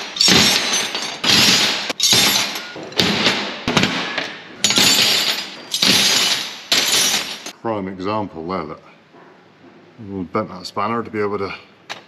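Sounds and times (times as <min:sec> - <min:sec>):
steel spanners clattering: 0:00.0 - 0:07.6.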